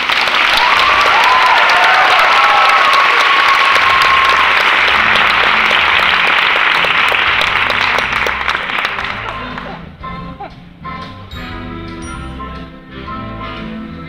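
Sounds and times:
audience applauding: 0.0 - 9.8
held musical tone: 4.1 - 14.0.

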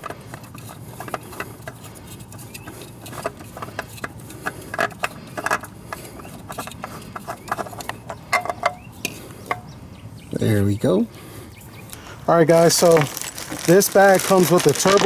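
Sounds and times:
metal clicks and knocks: 0.0 - 9.6.

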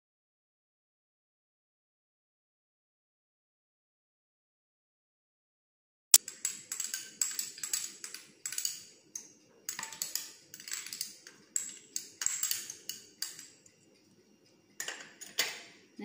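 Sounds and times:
metal utensil tapping steel bowl: 6.2 - 13.6.

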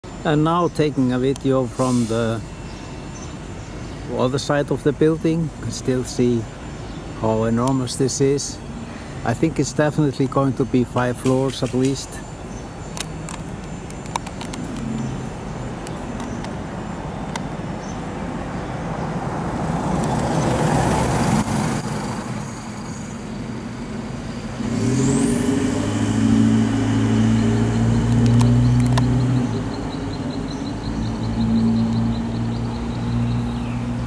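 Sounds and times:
vehicle passing: 18.7 - 34.0.

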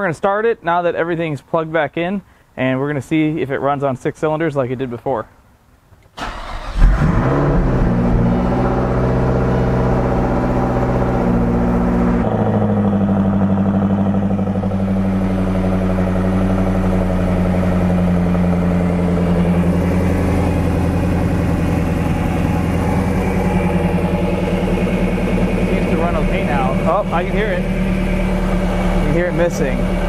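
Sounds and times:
misfiring car engine idling: 6.2 - 30.0.

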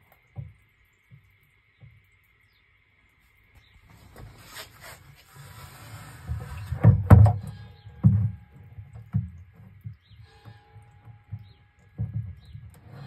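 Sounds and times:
water rustling: 0.0 - 13.0
dull knocks: 6.7 - 10.1, 11.2 - 12.8.

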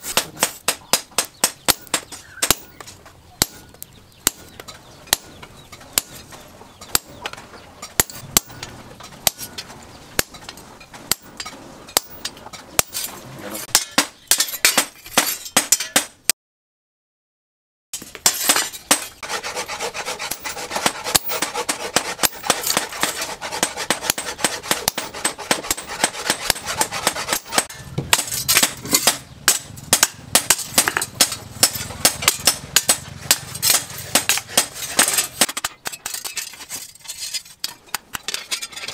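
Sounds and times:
hammer striking steel on anvil: 0.1 - 6.2, 7.8 - 9.6, 11.1 - 13.1, 13.7 - 16.2, 20.2 - 35.6.

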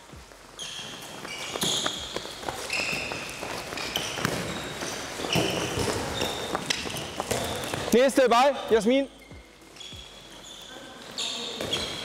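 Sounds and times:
running footsteps: 0.1 - 8.0
shoes squeaking on floor: 0.1 - 12.0
ball bouncing: 1.2 - 8.0.

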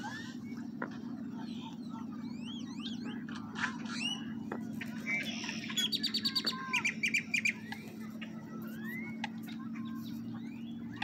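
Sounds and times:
low hum: 0.0 - 11.0
songbirds chirping: 0.0 - 11.0.

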